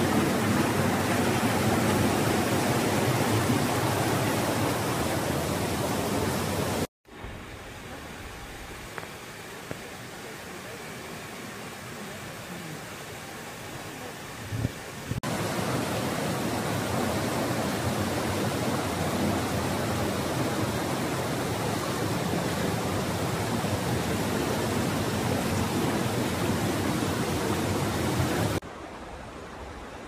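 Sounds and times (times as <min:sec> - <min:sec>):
quiet hiss: 0:07.1 - 0:15.0.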